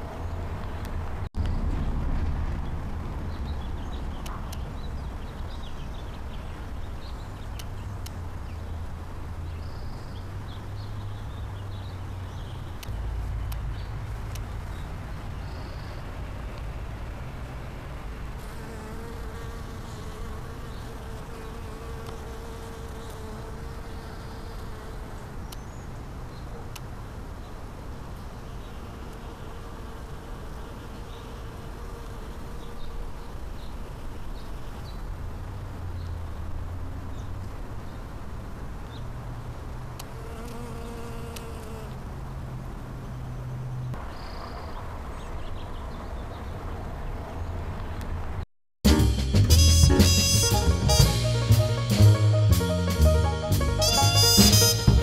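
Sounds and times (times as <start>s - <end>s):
constant low rumble: 0.0s - 6.9s
insects buzzing: 18.4s - 25.4s, 40.0s - 42.0s.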